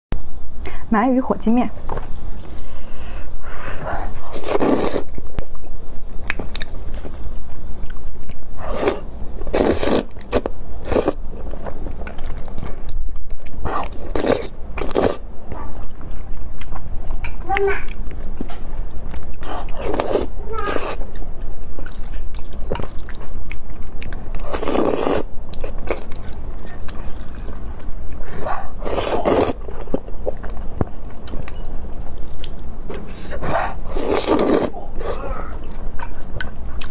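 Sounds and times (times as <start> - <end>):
noodle slurping: 4.3 - 5.2, 8.7 - 11.2, 24.4 - 25.3, 28.8 - 29.6, 33.2 - 35.5
chewing: 6.2 - 36.9.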